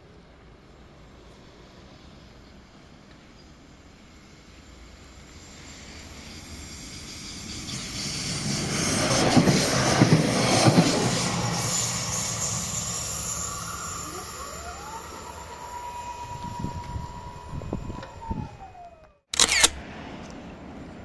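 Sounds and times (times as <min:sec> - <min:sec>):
train passing at speed: 0:00.0 - 0:19.0, 0:19.8 - 0:21.0
rising whine: 0:11.1 - 0:19.7.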